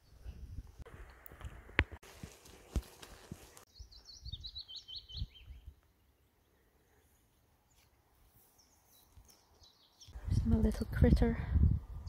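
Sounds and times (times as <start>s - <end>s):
songbird chirping: 2.5s - 10.9s.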